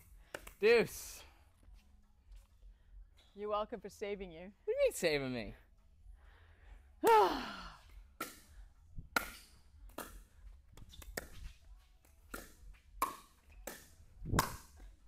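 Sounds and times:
paddles hitting plastic ball: 0:00.0 - 0:00.6, 0:08.1 - 0:15.0.

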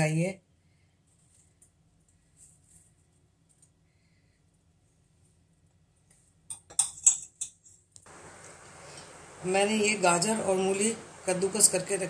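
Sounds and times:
faint low hum: 0:08.0 - 0:12.0.

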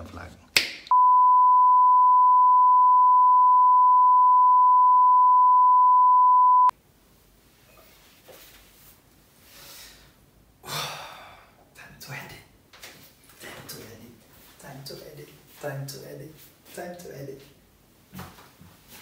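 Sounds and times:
steady test tone beep: 0:00.9 - 0:06.7.

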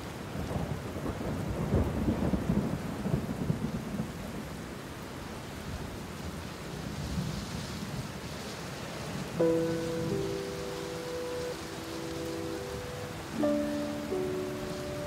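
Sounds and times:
surf washing over pebbles: 0:06.5 - 0:15.0.

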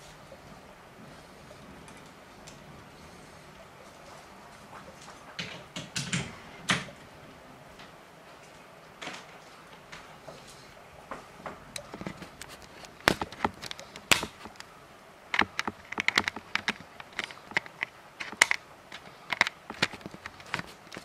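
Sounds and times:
raindrops tapping on window: 0:01.5 - 0:14.7, 0:15.3 - 0:21.0.

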